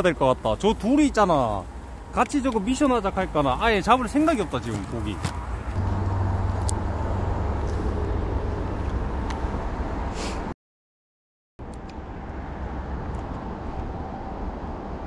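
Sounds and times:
low outdoor rumble: 0.0 - 10.1.

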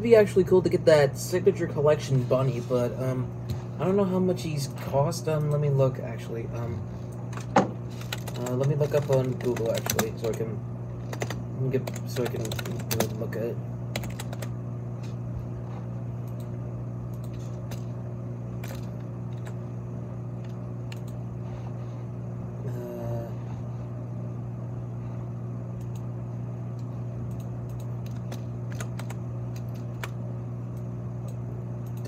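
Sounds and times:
steady low hum: 0.0 - 32.0
typing on computer keyboard: 7.3 - 10.4, 11.0 - 13.2, 13.9 - 14.5, 27.3 - 30.2.

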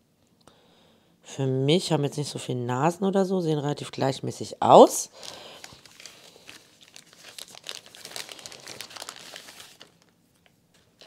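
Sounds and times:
thin plastic crinkling: 5.1 - 11.0.

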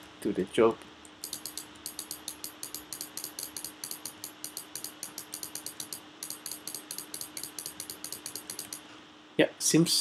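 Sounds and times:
faint steady hum: 0.0 - 10.0
rapid sharp clicking: 1.0 - 8.8.

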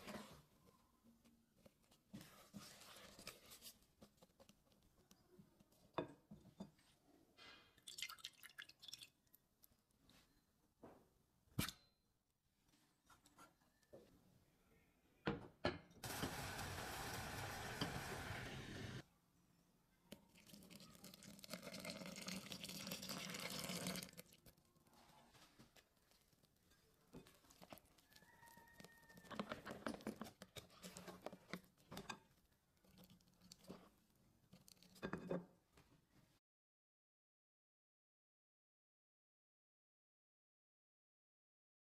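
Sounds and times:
spatula stirring batter: 0.0 - 6.9, 23.2 - 35.4
milk boiling in saucepan: 7.8 - 9.6, 16.0 - 19.0, 20.1 - 35.5.

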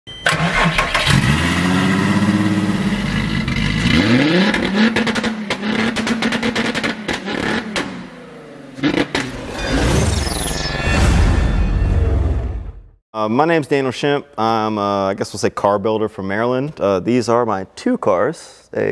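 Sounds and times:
car engine revving: 0.8 - 9.6.

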